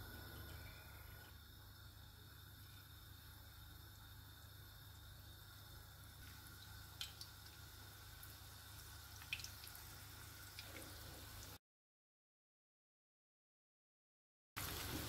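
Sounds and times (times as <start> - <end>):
onions frying in oil: 0.0 - 11.6, 14.6 - 15.0.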